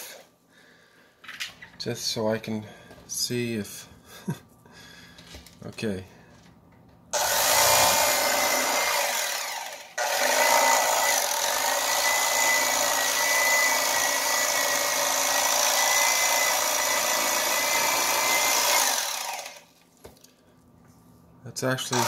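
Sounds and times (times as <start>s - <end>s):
electric fillet knife buzzing: 7.2s - 19.7s.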